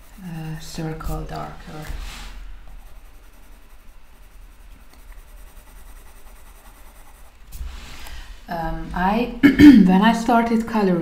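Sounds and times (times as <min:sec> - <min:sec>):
pencil scratching on paper: 0:00.0 - 0:07.4.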